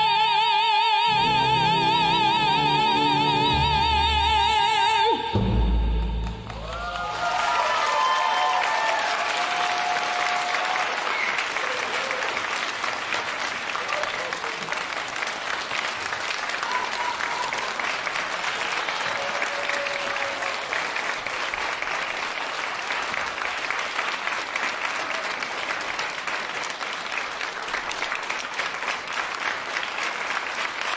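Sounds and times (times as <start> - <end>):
audience applauding: 6.2 - 30.9.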